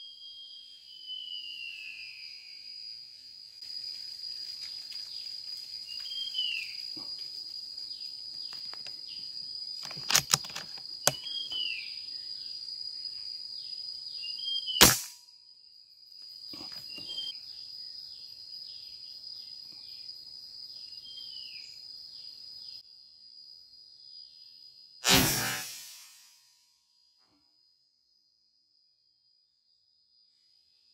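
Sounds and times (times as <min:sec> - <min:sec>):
loud gunshot: 0:14.8 - 0:15.2, 0:25.0 - 0:26.2.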